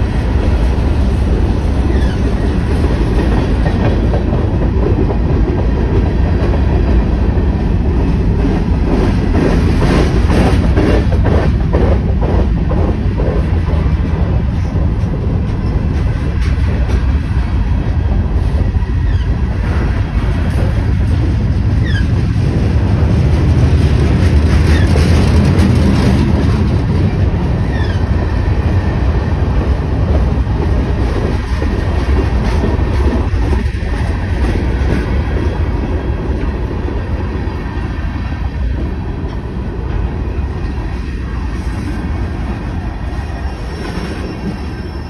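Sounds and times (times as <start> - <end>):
train wheels rumbling on track: 0.0 - 45.0
high wheel squeals: 43.4 - 45.0.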